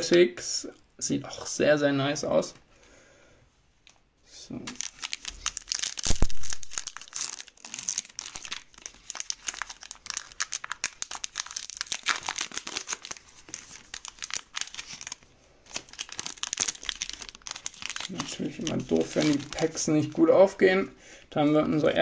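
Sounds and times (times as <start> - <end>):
foil wrapper crinkling and tearing: 4.7 - 20.6.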